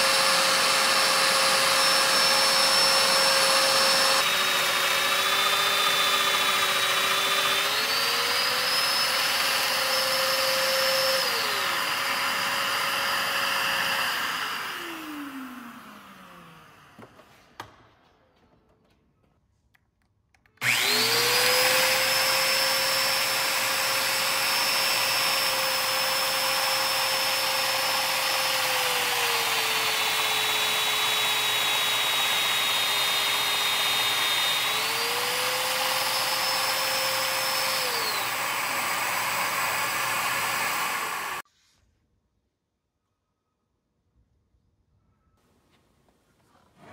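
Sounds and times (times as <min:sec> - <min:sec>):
dust extractor hissing: 0:00.0 - 0:16.2, 0:20.6 - 0:41.4
joiner motor whine: 0:00.0 - 0:17.0, 0:20.6 - 0:41.4.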